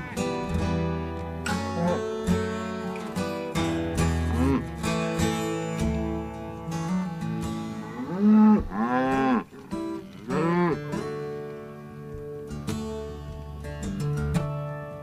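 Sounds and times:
acoustic guitar music: 0.0s - 15.0s
cattle mooing: 1.7s - 2.2s, 4.1s - 4.8s, 6.8s - 11.0s.

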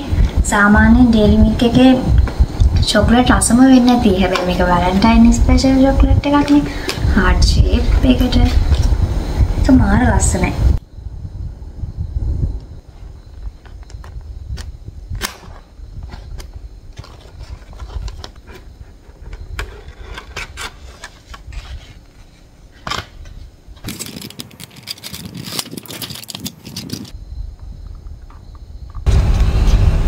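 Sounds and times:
foil wrappers crinkling: 23.8s - 27.1s.

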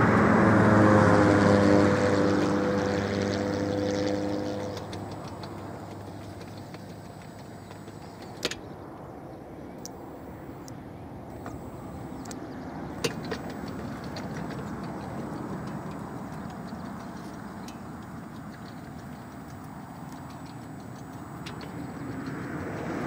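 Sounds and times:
faint ticks: 3.5s - 8.6s, 13.0s - 23.0s
sharp clicks: 4.6s - 8.7s, 9.8s - 12.4s, 13.0s - 23.0s.

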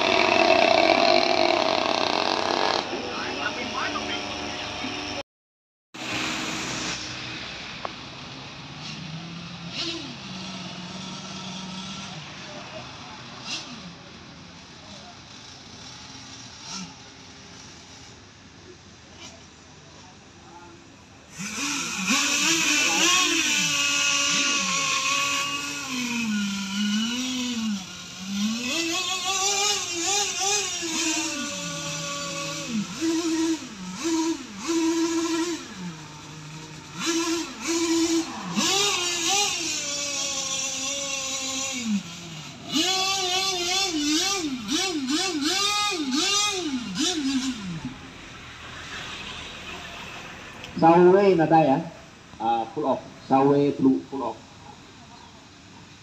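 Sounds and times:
engine running: 0.0s - 5.2s, 6.0s - 56.0s
outdoor hiss: 6.0s - 10.9s.

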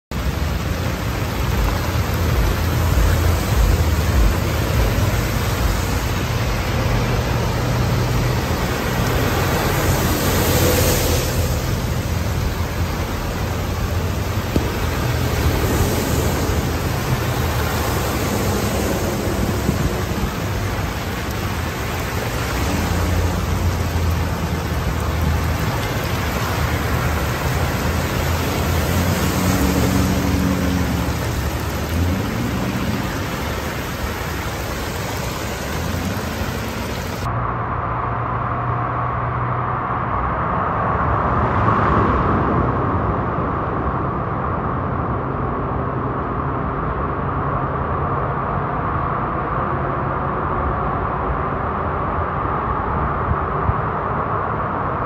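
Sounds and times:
heavy rain pouring: 0.0s - 37.3s
cars driving through floodwater: 0.1s - 55.0s.

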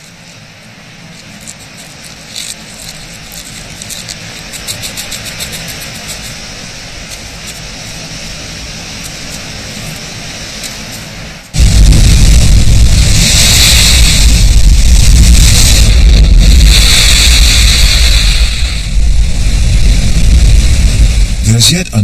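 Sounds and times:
light ticks and rustles: 0.0s - 8.1s
steady noise: 0.0s - 22.0s.

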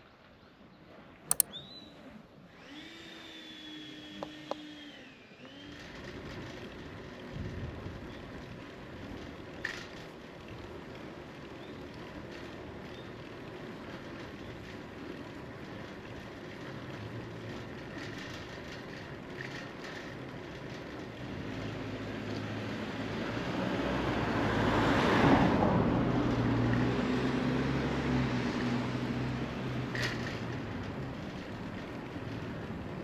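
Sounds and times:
short click: 1.3s - 1.5s
wind and road rumble: 5.6s - 33.0s
car passing by: 21.4s - 30.5s.

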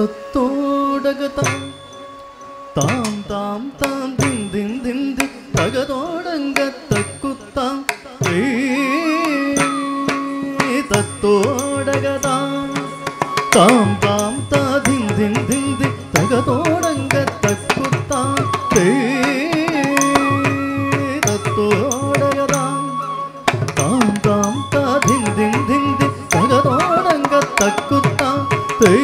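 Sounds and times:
wavering melody over held tones: 8.2s - 29.0s.

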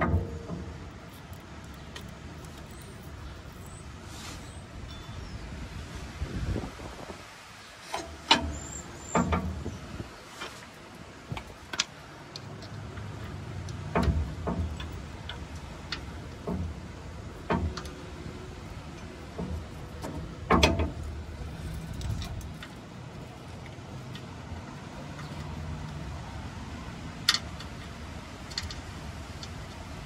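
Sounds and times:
metallic clicks and knocks: 0.0s - 3.4s, 7.9s - 9.8s, 11.3s - 26.3s, 27.1s - 30.0s.

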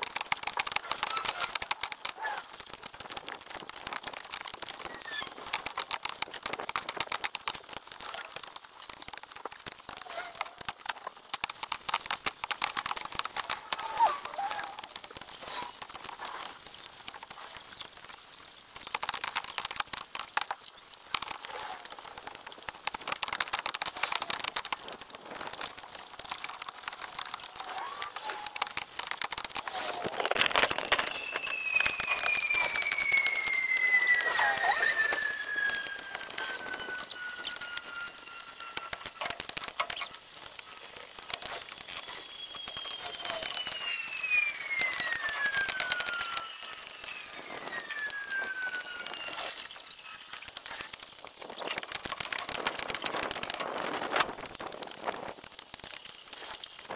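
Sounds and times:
rapid clicks and knocks of firewood: 0.0s - 56.9s
tone sliding down in pitch: 30.8s - 39.3s.

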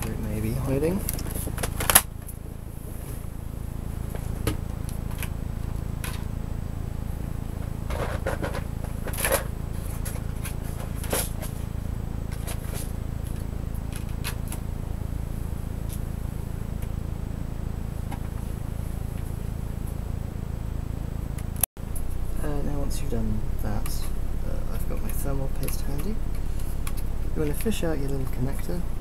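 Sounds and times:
steady low hum: 0.0s - 29.0s
knocks and clatters of rummaging: 7.9s - 11.6s.

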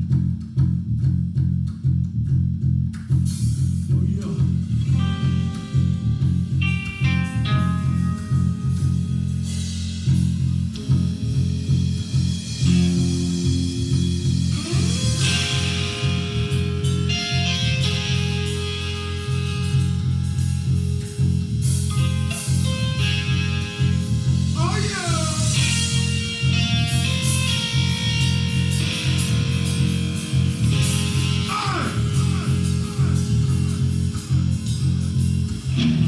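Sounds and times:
bass guitar riff: 0.0s - 36.0s
electric guitar lead lines: 0.0s - 36.0s
drum kit with cymbals: 3.1s - 36.0s.

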